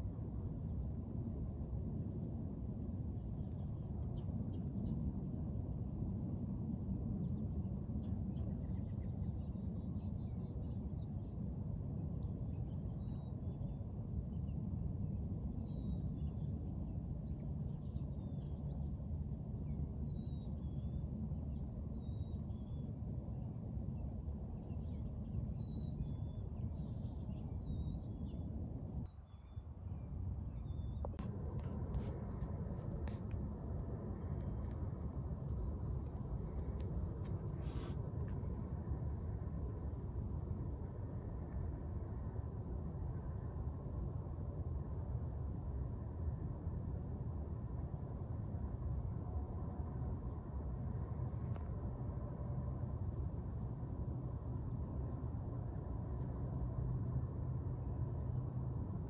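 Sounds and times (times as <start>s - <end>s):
steady low rumble: 0.0s - 59.0s
faint high bird chirps: 23.8s - 32.4s.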